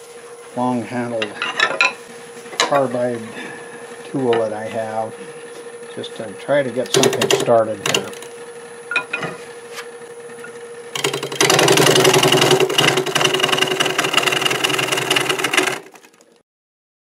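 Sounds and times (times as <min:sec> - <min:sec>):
wood lathe humming: 0:06.9 - 0:08.6, 0:11.0 - 0:16.2.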